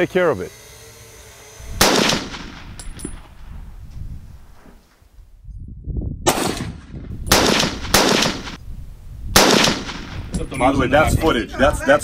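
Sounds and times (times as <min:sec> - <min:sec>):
gunshots from a long gun: 0:01.8 - 0:02.8, 0:06.2 - 0:08.6, 0:09.3 - 0:10.3.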